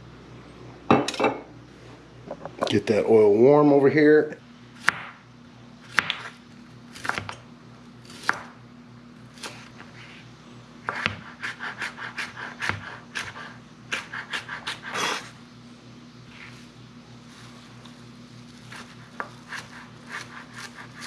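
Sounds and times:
knife chopping on cutting board: 4.8s - 5.2s, 5.9s - 7.4s, 8.0s - 8.5s, 10.8s - 15.3s, 18.7s - 21.0s.

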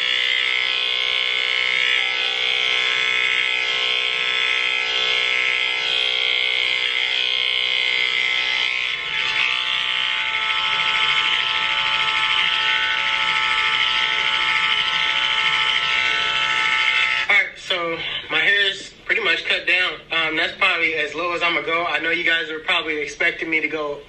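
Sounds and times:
electric hair clippers buzzing: 0.0s - 17.3s.

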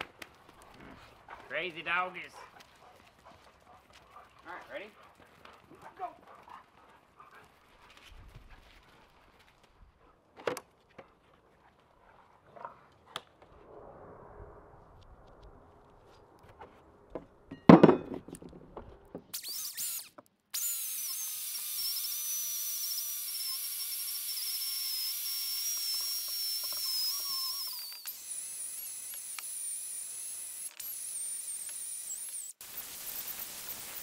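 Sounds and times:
rotary tool whine: 19.3s - 34.0s.

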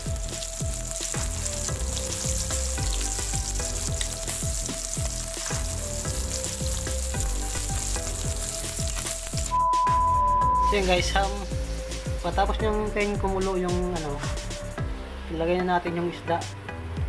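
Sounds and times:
fish sizzling in hot oil: 0.0s - 9.6s, 10.6s - 14.6s.

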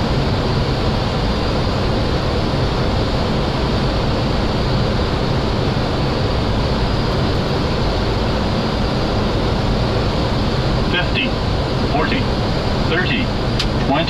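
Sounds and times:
airflow over aircraft nose: 0.0s - 14.0s
jet engines at approach power: 0.0s - 14.0s.

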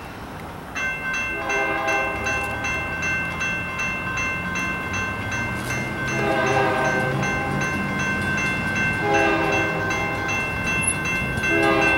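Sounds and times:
railroad crossing bells dinging: 0.0s - 11.9s
train horn: 1.4s - 2.4s, 6.1s - 7.2s, 9.0s - 10.0s, 11.4s - 11.9s.

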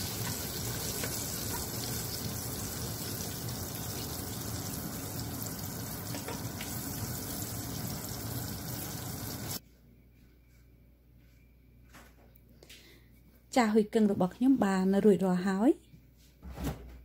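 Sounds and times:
hot oil bubbling and sizzling: 0.0s - 9.6s.

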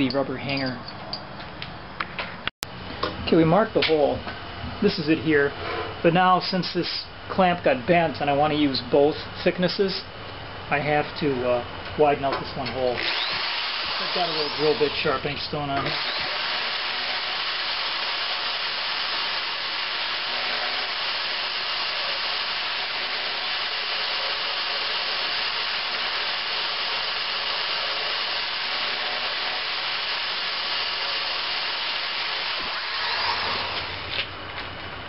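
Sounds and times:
drill grinding stone on steel: 13.0s - 15.2s, 15.8s - 34.2s.

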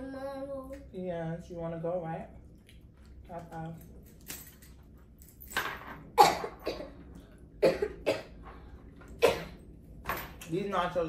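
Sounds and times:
girl coughing: 6.2s - 7.0s, 7.6s - 8.3s, 9.2s - 9.6s.

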